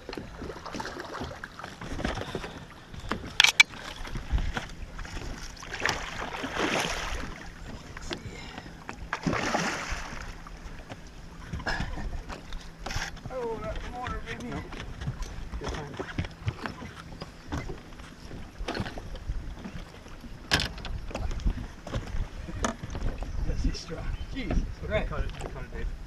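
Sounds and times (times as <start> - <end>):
fish thrashing and splashing: 5.0 - 7.5, 9.2 - 10.4.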